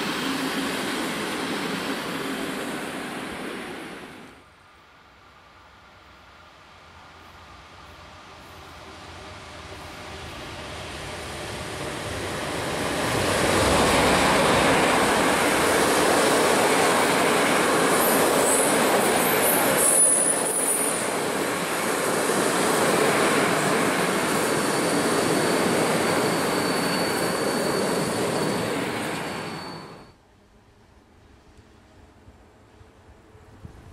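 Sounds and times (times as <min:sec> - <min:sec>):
train wheels rumbling on rail: 0:05.9 - 0:30.2
high wheel squeals: 0:24.0 - 0:30.2.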